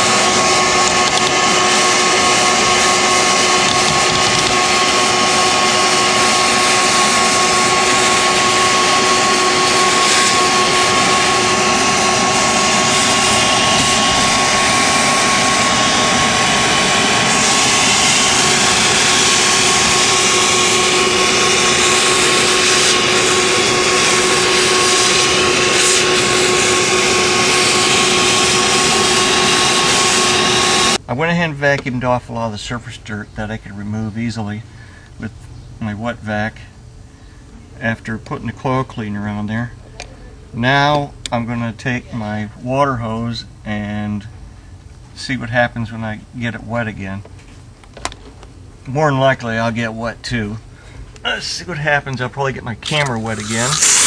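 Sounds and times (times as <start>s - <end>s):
nozzle sucking dirt and foam: 0.0s - 31.0s, 51.5s - 54.0s
wet vac motor whine: 0.0s - 31.1s, 52.1s - 54.0s.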